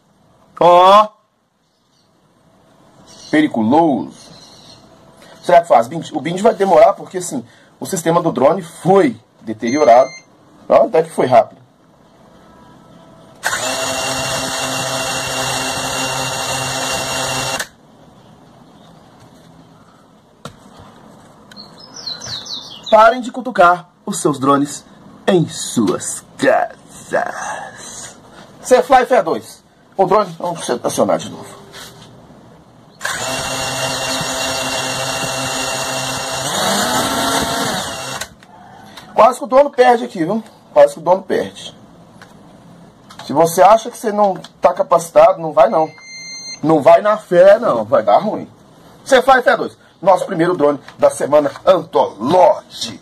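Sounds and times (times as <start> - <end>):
drone motors and propellers spinning: 13.4 - 17.7, 33.0 - 38.3.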